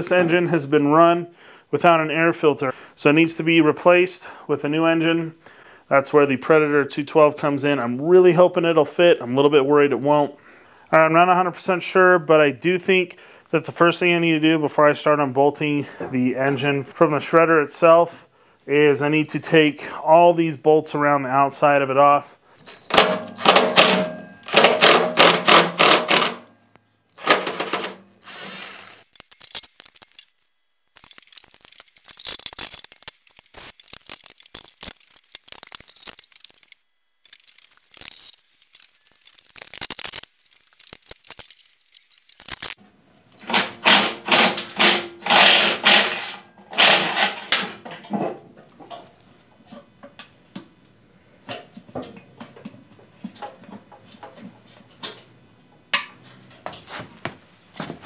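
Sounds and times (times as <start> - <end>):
cordless power driver rattling: 22.9 - 26.5, 27.2 - 30.0, 43.4 - 47.8.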